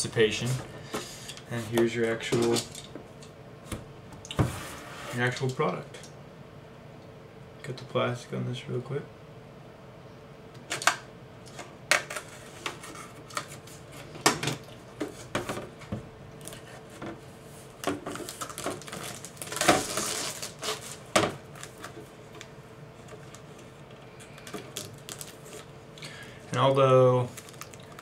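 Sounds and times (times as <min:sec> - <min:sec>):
plastic wrapping rustle: 0:17.7 - 0:22.0, 0:24.3 - 0:25.7, 0:26.6 - 0:28.0
rigid plastic clicking and crinkling: 0:27.3 - 0:28.0.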